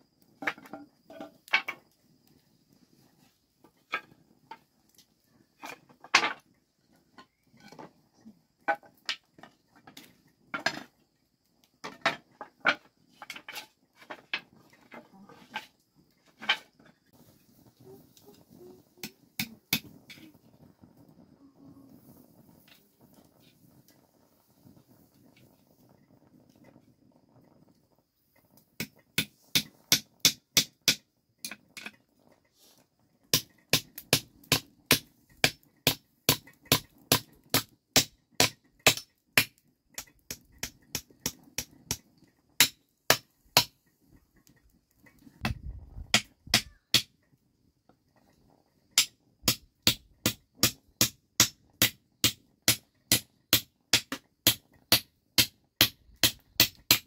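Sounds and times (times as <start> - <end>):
hammer striking nails into wood: 33.4 - 39.1, 49.0 - 57.0.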